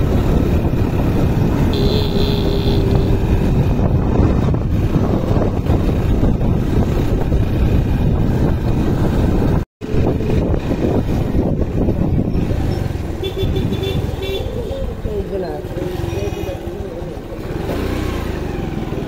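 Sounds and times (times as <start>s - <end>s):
wind noise on microphone: 0.0s - 15.1s
motorcycle engine: 0.0s - 19.0s.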